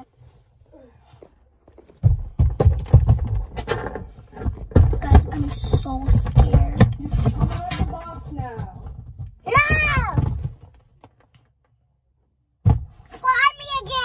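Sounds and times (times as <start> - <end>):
rubbing and knocking on microphone: 1.7 - 11.3.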